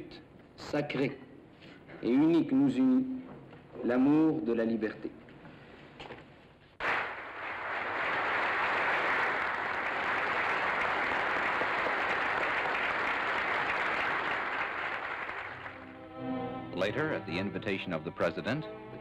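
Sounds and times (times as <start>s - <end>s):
audience applauding: 6.8s - 15.9s.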